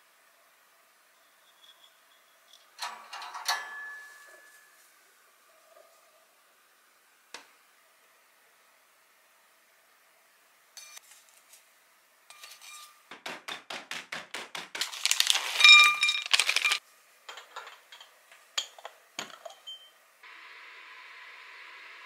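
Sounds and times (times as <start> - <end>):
nuts crunching: 14.8 - 16.8
plastic packet crinkling: 14.8 - 16.8.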